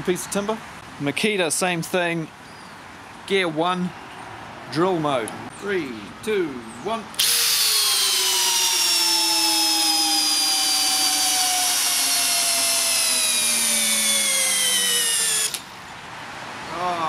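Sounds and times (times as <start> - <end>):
cordless drill motor whine: 7.2 - 15.7.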